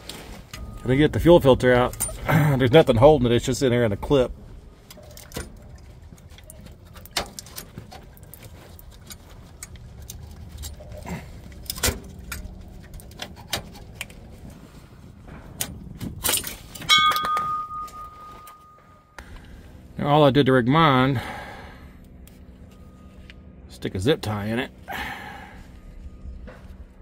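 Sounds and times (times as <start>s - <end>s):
short metallic ringing note: 16.9s - 19.2s.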